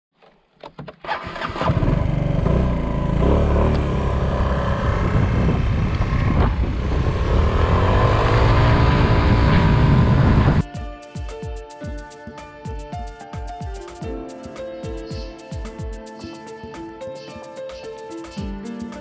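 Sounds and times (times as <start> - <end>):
scooter engine accelerating: 1.0 - 10.6
wind rumble on microphone: 3.7 - 10.6.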